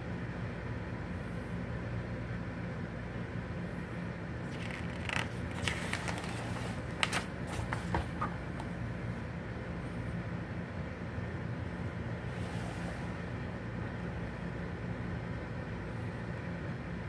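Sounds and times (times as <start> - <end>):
steady low hum: 0.0 - 17.0
magazine pages turning: 4.4 - 8.7.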